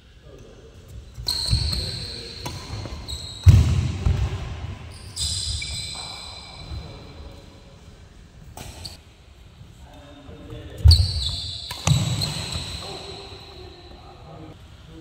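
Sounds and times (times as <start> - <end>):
shoes squeaking on floor: 1.1 - 3.8, 4.9 - 7.0, 8.6 - 9.0, 10.6 - 14.1
rackets hitting shuttlecock: 11.7 - 12.6.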